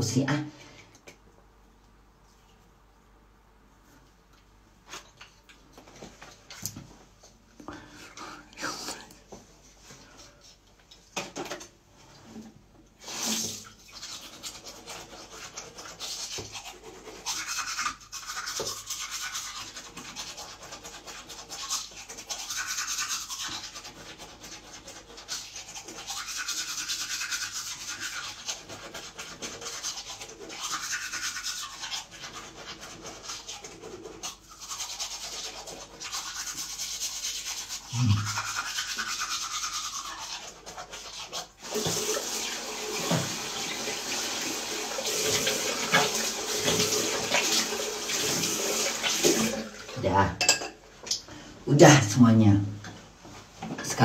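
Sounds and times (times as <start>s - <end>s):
toothbrush scrubbing teeth: 8.0s - 9.2s, 13.0s - 49.9s.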